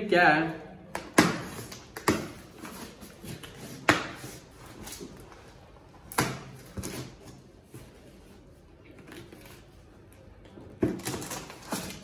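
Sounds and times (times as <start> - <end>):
scissors cutting packing tape: 10.9 - 12.0.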